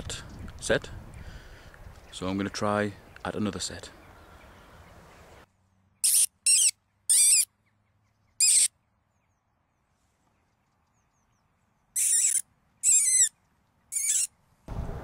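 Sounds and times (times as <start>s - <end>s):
high-pitched mouth squeaks: 6.0s - 7.5s, 8.4s - 8.7s, 12.0s - 13.3s, 13.9s - 14.3s.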